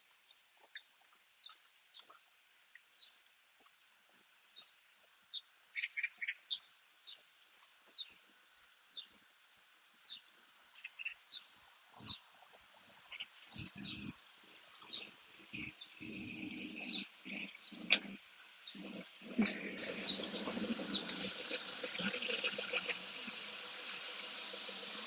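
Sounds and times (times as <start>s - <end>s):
small bird chirping: 5.3s - 7.2s, 10.8s - 12.3s, 13.1s - 23.4s.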